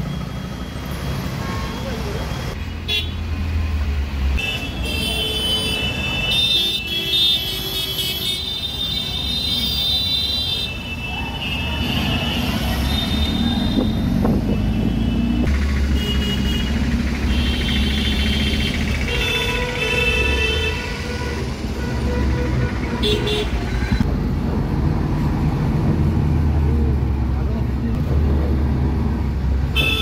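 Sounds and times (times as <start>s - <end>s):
vehicle horns: 2.8s - 3.2s, 4.4s - 24.0s, 29.7s - 30.0s
van engine and road rumble: 12.4s - 30.0s.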